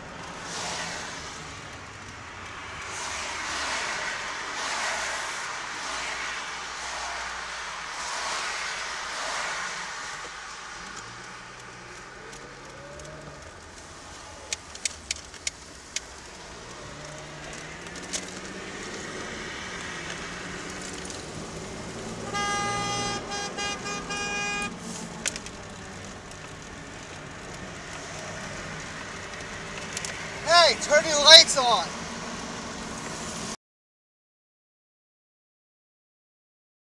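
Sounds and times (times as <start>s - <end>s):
car engine and road noise: 0.0s - 33.6s
sharp clicks: 10.2s - 19.0s
car horn honking: 22.1s - 25.1s.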